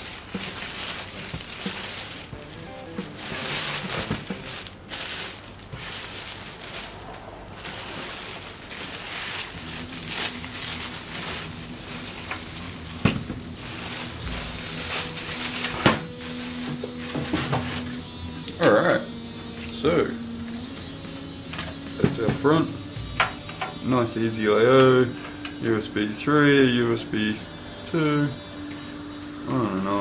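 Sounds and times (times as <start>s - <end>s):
plastic bag crinkling: 0.0s - 18.0s.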